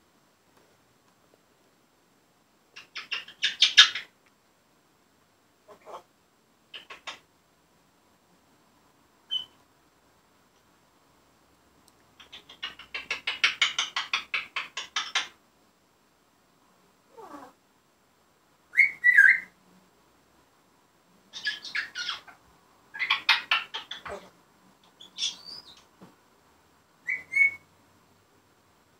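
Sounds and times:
parrot rattling chatter: 0:12.2 - 0:15.4.

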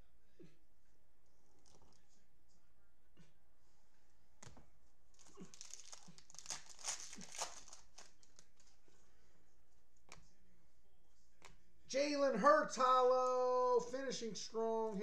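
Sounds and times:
foil wrapper crinkling and tearing: 0:05.1 - 0:08.7.

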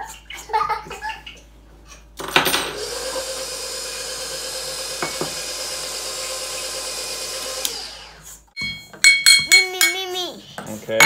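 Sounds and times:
stand mixer humming: 0:02.7 - 0:08.2.

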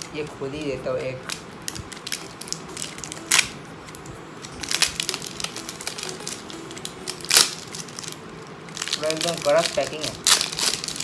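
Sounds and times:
plastic wrapping crinkling: 0:01.2 - 0:11.0.

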